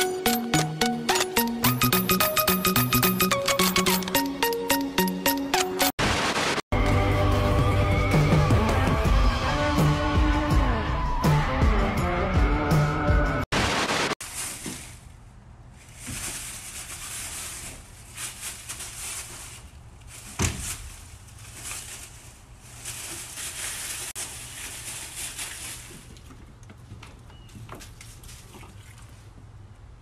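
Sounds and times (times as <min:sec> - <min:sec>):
static burst: 0:06.0 - 0:06.6, 0:13.5 - 0:14.2
animals rustling in dry leaves: 0:14.2 - 0:26.5.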